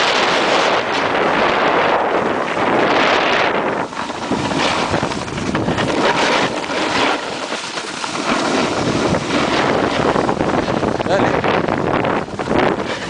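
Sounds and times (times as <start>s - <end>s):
skis sliding over snow: 0.0s - 13.0s
wind rushing over microphone: 0.0s - 13.0s.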